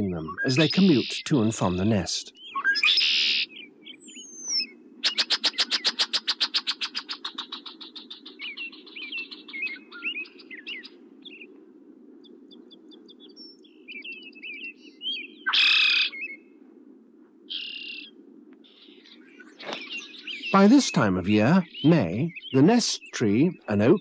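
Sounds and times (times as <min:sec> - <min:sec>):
small birds chirping and chattering: 0:00.0 - 0:11.6, 0:12.2 - 0:16.5, 0:17.5 - 0:24.0
loud harsh bird call: 0:00.1 - 0:03.6, 0:15.4 - 0:16.4
steady low hum: 0:16.5 - 0:24.0.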